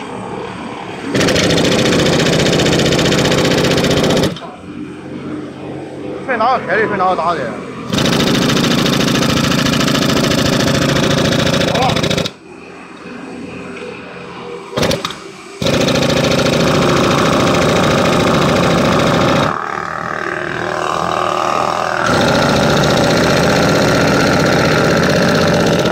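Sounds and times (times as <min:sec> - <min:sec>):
pneumatic hammer rattling in stone: 0:01.1 - 0:04.6, 0:07.9 - 0:12.4, 0:14.8 - 0:19.6, 0:22.0 - 0:25.9.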